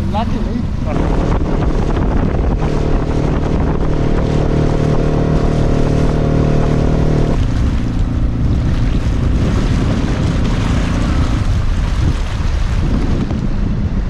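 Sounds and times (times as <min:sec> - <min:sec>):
boat motor running: 0:00.0 - 0:14.0
choppy water against hull: 0:00.0 - 0:14.0
wind buffeting microphone: 0:00.0 - 0:14.0.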